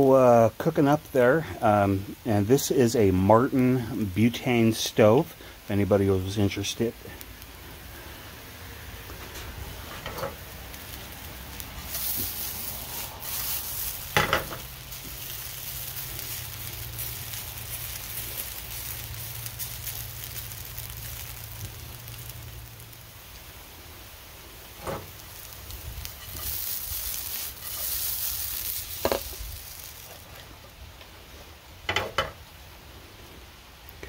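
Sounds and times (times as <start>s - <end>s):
potatoes sizzling in oil: 0.0s - 34.0s
spatula stirring in pan: 9.8s - 21.5s, 24.8s - 30.4s.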